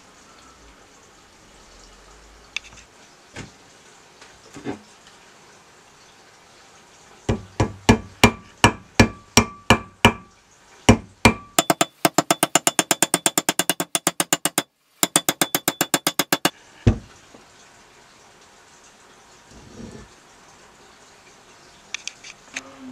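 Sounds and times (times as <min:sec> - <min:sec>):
hammer striking steel wedge: 0:07.3 - 0:10.3, 0:10.9 - 0:16.5.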